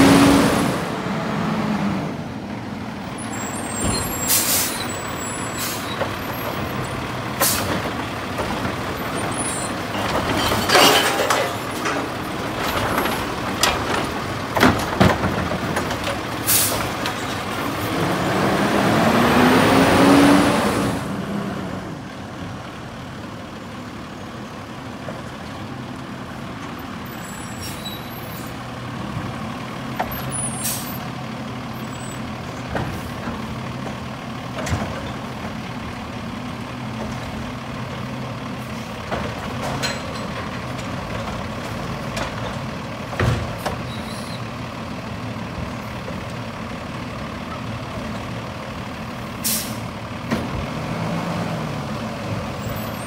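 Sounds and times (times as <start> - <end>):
truck engine idling: 2.2 - 17.8, 22.0 - 50.7
air brake hisses and clunks: 4.0 - 4.9, 7.4 - 7.7, 16.5 - 16.9, 30.5 - 31.0, 49.4 - 49.9.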